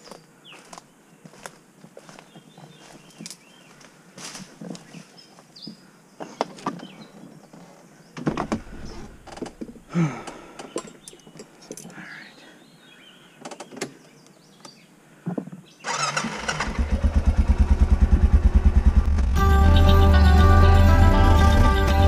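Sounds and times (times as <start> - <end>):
atv engine running: 15.9 - 22.0.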